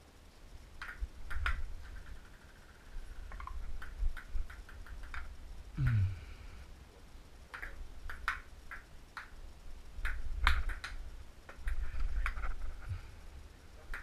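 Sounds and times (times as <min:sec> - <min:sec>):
table tennis ball clicking: 0:00.8 - 0:05.3, 0:07.5 - 0:09.4, 0:10.0 - 0:12.4.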